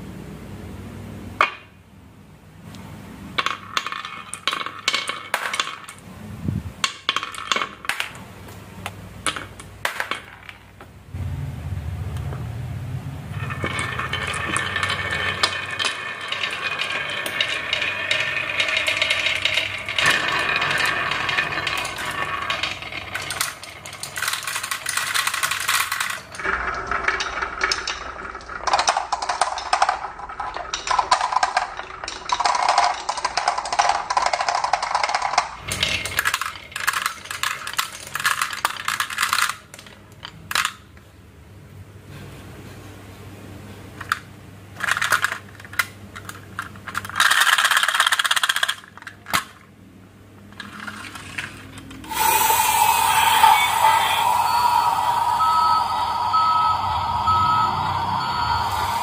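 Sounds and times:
glass marbles rolling and clicking: 3.4 - 6.0, 13.3 - 40.9, 50.6 - 59.0.

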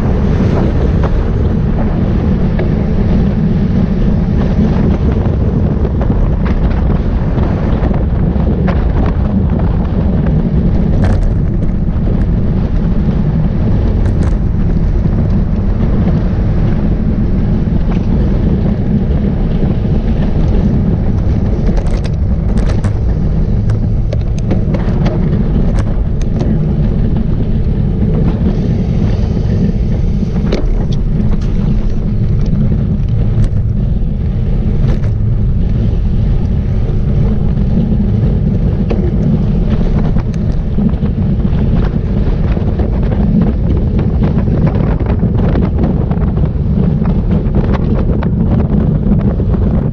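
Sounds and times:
wind buffeting microphone: 0.0 - 49.9
small clicks and ticks: 10.6 - 16.5, 19.9 - 33.8.

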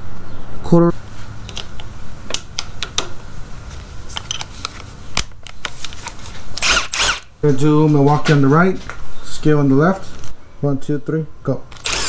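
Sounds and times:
bits clicking into drill chucks: 6.6 - 7.3, 11.7 - 12.0.

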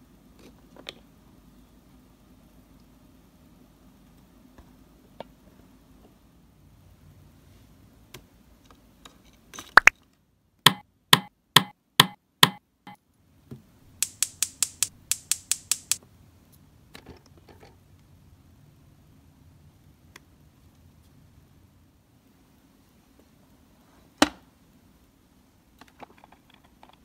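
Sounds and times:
plastic toy parts clicking: 14.0 - 16.0.

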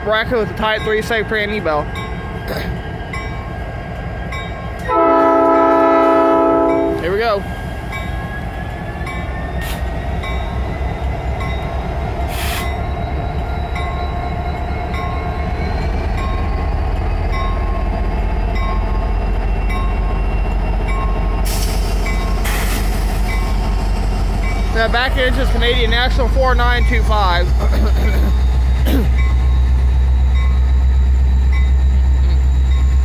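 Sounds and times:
diesel locomotive engine rumble: 0.0 - 33.0
crossing bell dinging: 0.2 - 2.5, 4.3 - 7.2, 10.2 - 12.0, 12.6 - 22.5, 24.4 - 33.0.

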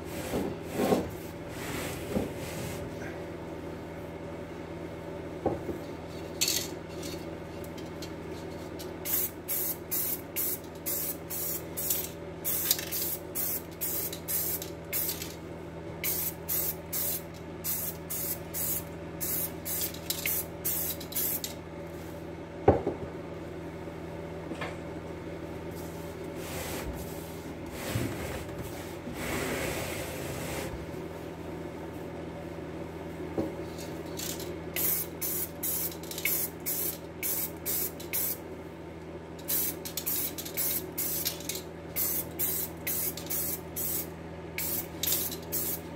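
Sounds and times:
steady low hum: 0.0 - 45.9
spray paint hissing bursts: 34.8 - 38.4, 42.0 - 45.9.

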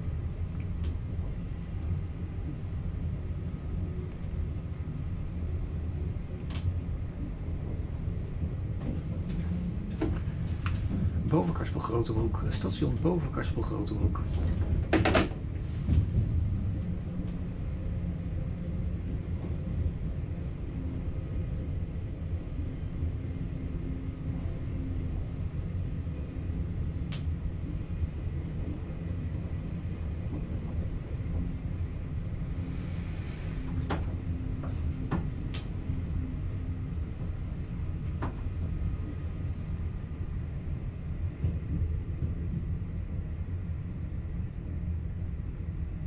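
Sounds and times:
electric train rumble: 0.0 - 46.0.

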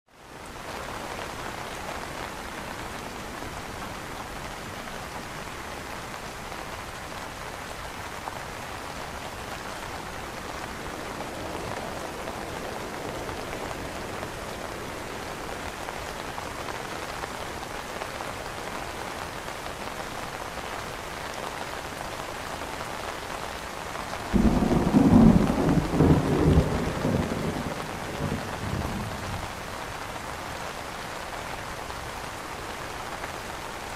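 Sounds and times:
rain on an umbrella: 0.1 - 33.9
thunder rumbling: 24.3 - 29.6.

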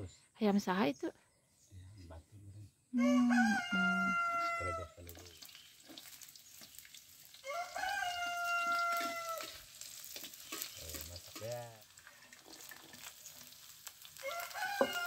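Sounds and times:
rooster crowing: 3.0 - 5.0, 7.4 - 9.7, 14.2 - 15.0
chicken sizzling in a wok: 4.1 - 15.0.

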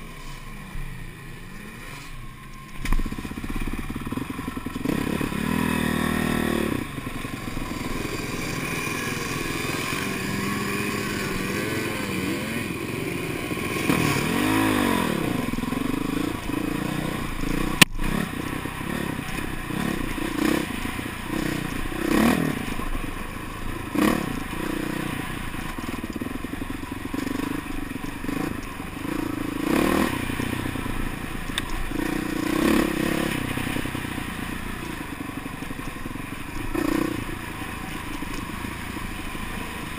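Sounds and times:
dirt bike engine revving: 2.9 - 39.9.

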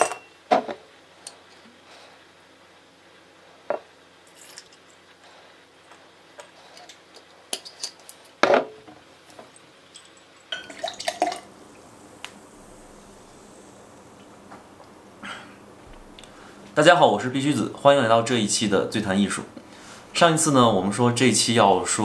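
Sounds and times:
ice clinking against glass: 0.0 - 0.4, 9.9 - 11.5
liquid pouring over ice: 9.6 - 11.8.

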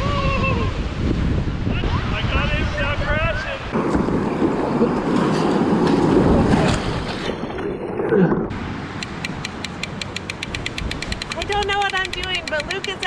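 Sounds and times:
wind on microphone: 0.0 - 8.6
surf: 0.0 - 9.5
rapid even clicking: 9.0 - 13.0.

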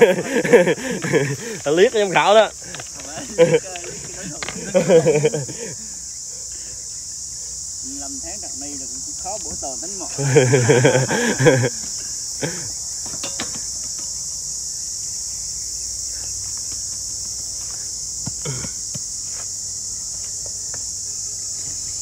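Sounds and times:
insects droning: 0.0 - 22.0
faint knocks and clatters: 13.0 - 14.2.

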